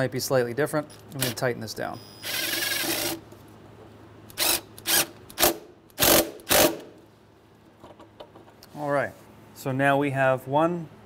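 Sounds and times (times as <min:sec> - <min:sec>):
cordless drill whirring: 0:02.2 - 0:03.2.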